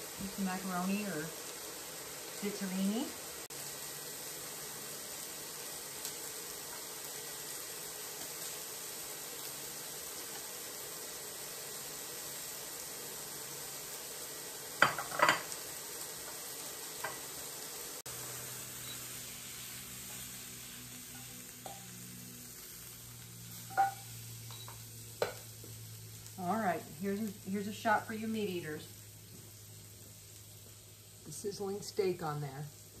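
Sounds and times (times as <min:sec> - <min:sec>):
steak sizzling in skillet: 0:00.0 - 0:33.0.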